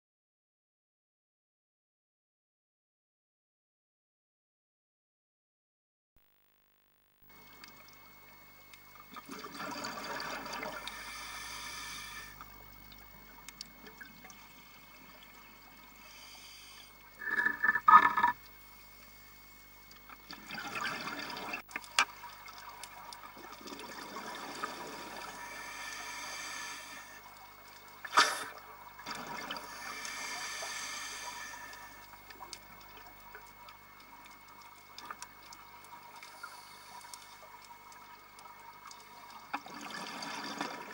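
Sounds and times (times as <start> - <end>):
underwater bubbles gurgling: 7.4 - 18.6, 19.7 - 40.9.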